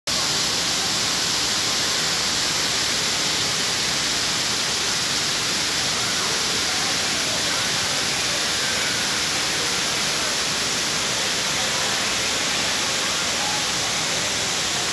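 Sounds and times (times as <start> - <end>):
fountain water hissing: 0.1 - 14.9.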